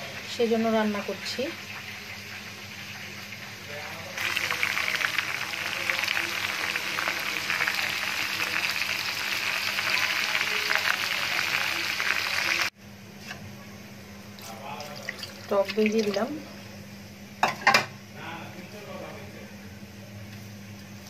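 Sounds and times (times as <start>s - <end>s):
onions sizzling in hot oil: 0.0s - 12.8s.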